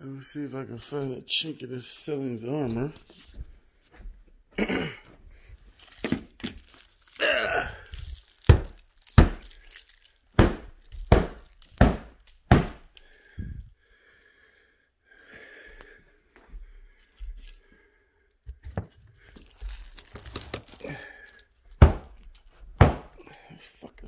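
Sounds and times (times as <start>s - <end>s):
sharp knocks on wood: 10.4s - 12.8s.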